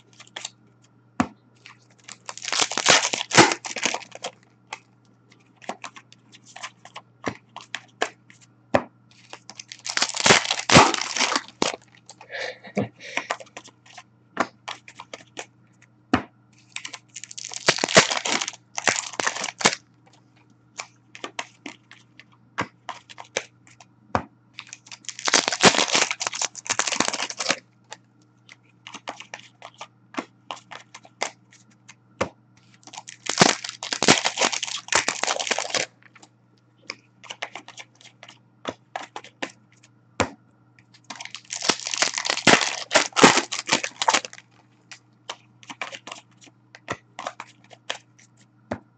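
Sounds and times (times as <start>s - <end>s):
card wrappers crinkling: 0.0s - 0.6s, 1.6s - 8.1s, 9.1s - 12.2s, 13.0s - 15.4s, 16.6s - 19.8s, 22.9s - 23.6s, 24.6s - 31.9s, 32.6s - 36.3s, 36.9s - 39.5s, 40.9s - 48.4s.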